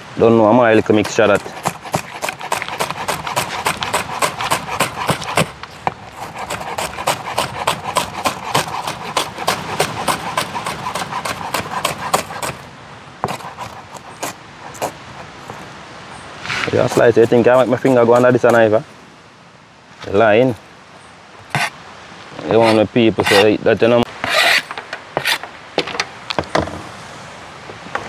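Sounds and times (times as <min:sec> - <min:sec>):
knife chopping vegetables: 0:00.9 - 0:12.6, 0:13.2 - 0:15.6, 0:16.9 - 0:18.6.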